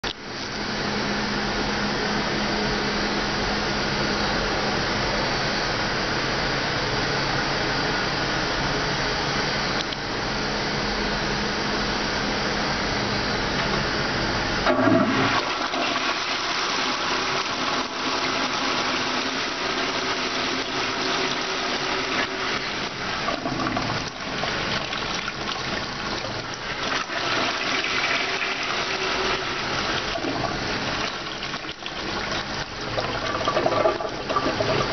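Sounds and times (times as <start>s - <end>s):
toilet flushing: 14.6s - 34.9s.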